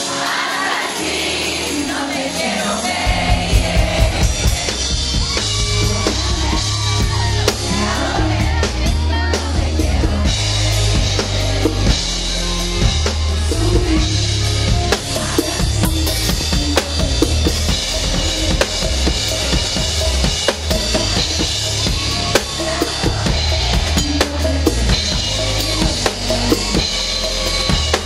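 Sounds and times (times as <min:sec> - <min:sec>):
bass and drums: 0:00.0 - 0:28.0
man singing: 0:05.6 - 0:28.0.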